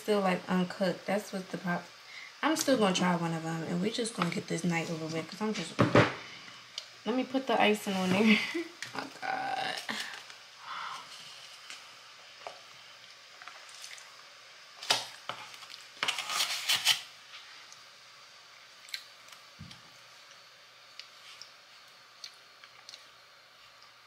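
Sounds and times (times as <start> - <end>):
person eating a cookie: 20.2 - 24.0.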